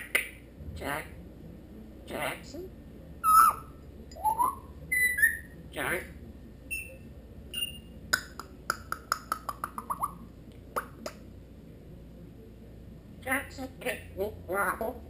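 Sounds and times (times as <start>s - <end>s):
parrot whistles and chirps: 3.2s - 5.6s, 6.7s - 7.9s
parrot clicks: 8.1s - 10.1s.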